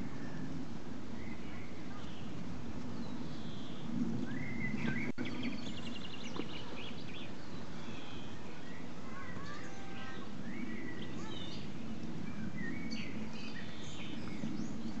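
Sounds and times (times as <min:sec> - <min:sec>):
songbirds chirping: 0:00.0 - 0:15.0
steady low rumble: 0:10.2 - 0:15.0.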